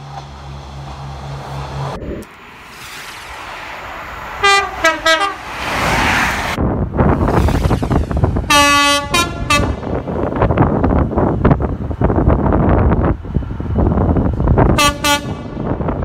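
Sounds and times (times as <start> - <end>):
locomotive rumble: 0.0 - 16.0
locomotive horn low note and toots: 4.4 - 5.4, 8.5 - 9.9, 14.8 - 15.6
wind on microphone: 6.4 - 16.0
train horn short notes: 8.5 - 9.8, 14.8 - 15.4.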